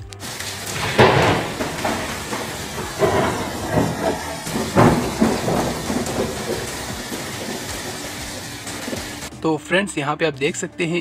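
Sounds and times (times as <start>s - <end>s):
rain hissing: 0.0s - 9.3s
thunder cracks and rumbles: 0.6s - 9.2s.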